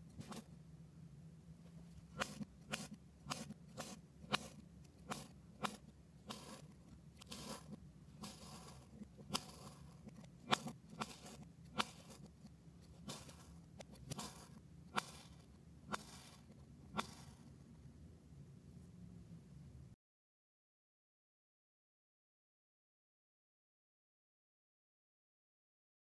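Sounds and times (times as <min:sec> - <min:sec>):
gritty scrapes: 0:02.1 - 0:17.5.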